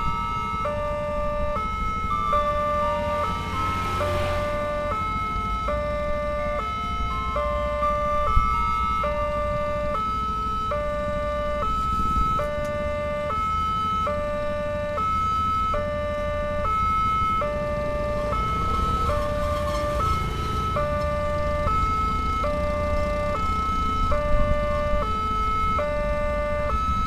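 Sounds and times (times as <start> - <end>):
two-tone crossing alarm: 0.0 - 27.0
motorcycle passing by: 2.3 - 5.6, 17.7 - 21.6.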